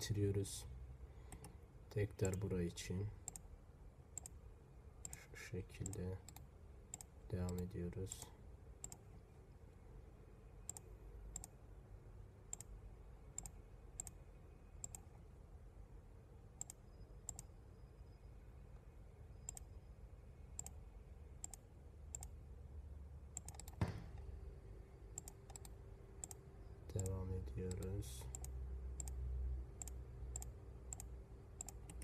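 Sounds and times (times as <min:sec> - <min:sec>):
faint room hum: 0:00.0 - 0:32.0
computer mouse clicking: 0:01.3 - 0:01.6, 0:03.2 - 0:03.5, 0:04.2 - 0:04.4, 0:05.8 - 0:07.7, 0:08.8 - 0:09.1, 0:10.7 - 0:11.6, 0:12.5 - 0:12.7, 0:13.4 - 0:14.2, 0:14.8 - 0:15.1, 0:16.6 - 0:17.5, 0:19.4 - 0:19.7, 0:20.6 - 0:20.8, 0:21.4 - 0:22.4, 0:23.3 - 0:23.8, 0:25.2 - 0:26.4, 0:27.0 - 0:29.2, 0:29.8 - 0:32.0.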